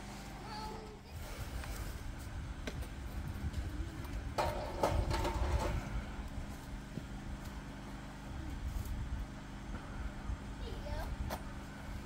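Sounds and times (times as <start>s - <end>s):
rough grinding: 4.4s - 6.0s.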